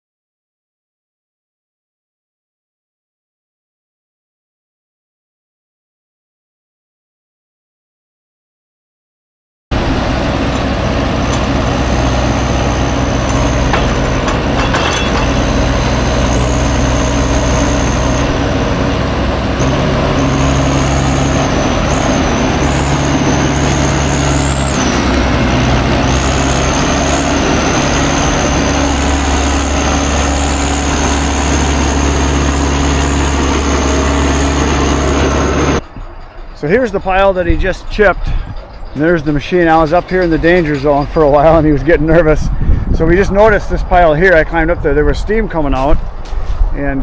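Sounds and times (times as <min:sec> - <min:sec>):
high thin whine: 0:09.7 - 0:44.7
diesel engine running: 0:09.7 - 0:47.0.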